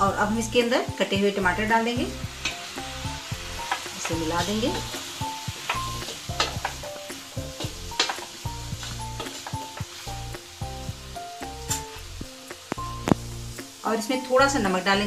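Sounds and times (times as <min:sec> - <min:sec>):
soft background music: 0:00.0 - 0:15.0
vegetables sizzling in oil: 0:00.0 - 0:15.0
spatula scraping a pan: 0:02.3 - 0:10.3.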